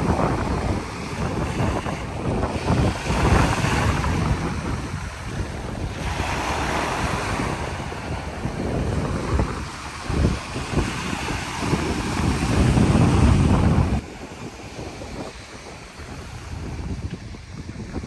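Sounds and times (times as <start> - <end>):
small waves washing up beach: 0.0 - 18.0
wind buffeting microphone: 0.0 - 18.0.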